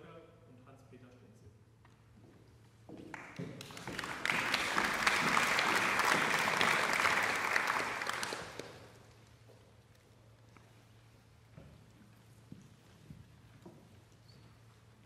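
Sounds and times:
audience applauding: 0:03.1 - 0:09.2.

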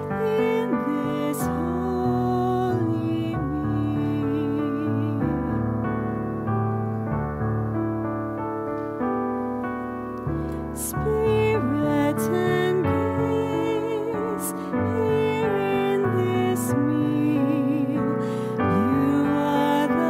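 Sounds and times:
gentle piano chords: 0:00.0 - 0:20.0.

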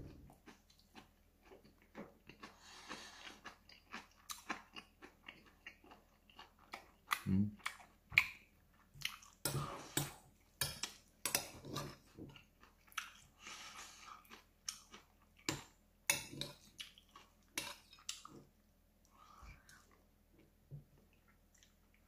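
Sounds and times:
close-up chewing: 0:00.1 - 0:09.6, 0:11.4 - 0:22.0.

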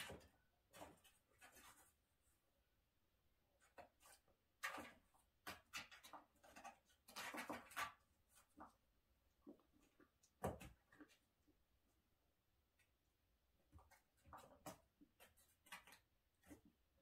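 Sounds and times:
cat scratching cardboard and tissue paper: 0:00.0 - 0:02.4, 0:03.6 - 0:08.8, 0:13.7 - 0:17.0.

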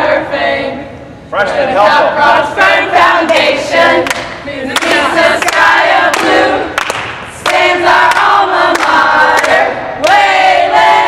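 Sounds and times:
women singing together: 0:00.0 - 0:11.0
sharp hand claps: 0:04.1 - 0:10.2.

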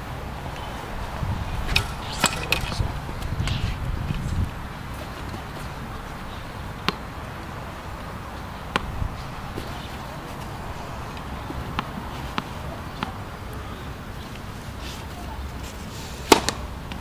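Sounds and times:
outdoor background hiss: 0:00.0 - 0:17.0
tennis ball bouncing on court: 0:01.7 - 0:07.2, 0:08.7 - 0:13.2.

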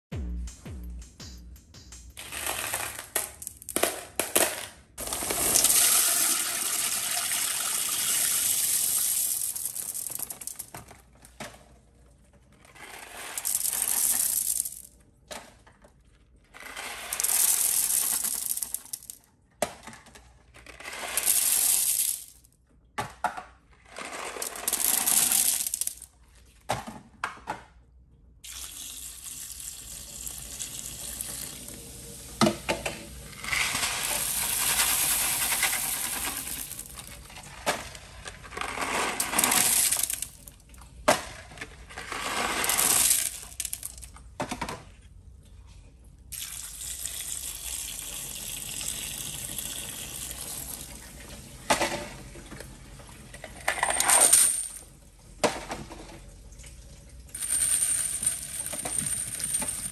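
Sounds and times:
candies rattling into toilet bowl: 0:02.2 - 0:11.7, 0:12.3 - 0:15.0, 0:16.0 - 0:22.4, 0:23.7 - 0:26.3, 0:32.8 - 0:44.2, 0:46.4 - 0:52.2, 0:53.2 - 0:54.8, 0:57.3 - 0:59.9.

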